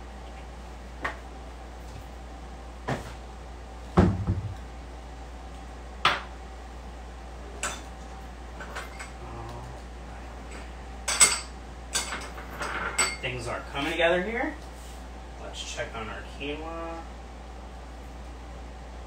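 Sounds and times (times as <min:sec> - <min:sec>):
steady low hum: 0:00.0 - 0:19.0
cabinet door thump and rattle: 0:04.0 - 0:04.6.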